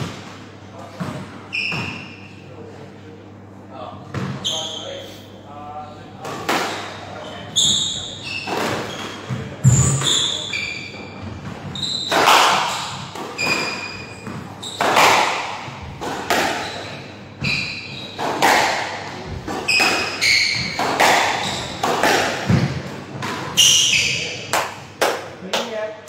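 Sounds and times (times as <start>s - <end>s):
shoes squeaking on wooden floor: 7.2s - 24.4s
squash ball smacked by racquets: 11.4s - 16.8s, 18.2s - 25.3s.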